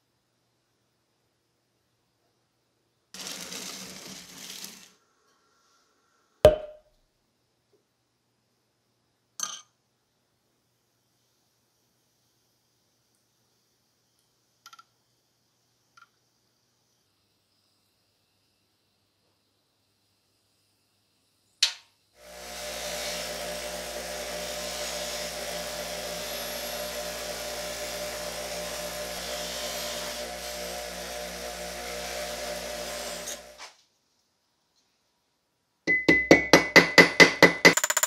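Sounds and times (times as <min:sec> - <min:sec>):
bench buffer motor running: 0:22.2 - 0:33.6.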